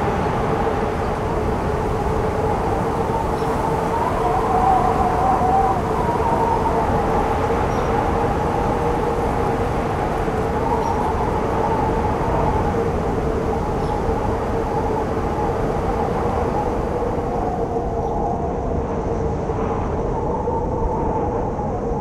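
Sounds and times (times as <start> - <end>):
blizzard wind whistling: 0.0 - 22.0.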